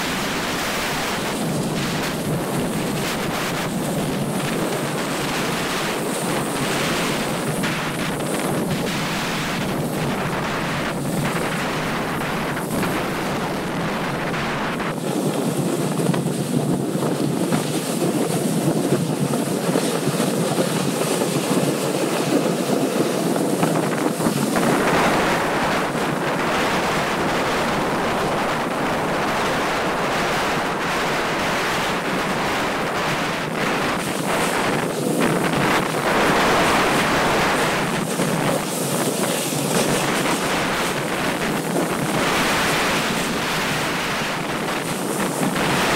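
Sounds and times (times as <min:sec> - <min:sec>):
skis hissing on packed snow: 0:00.0 - 0:45.9
wind rushing over microphone: 0:00.0 - 0:45.9.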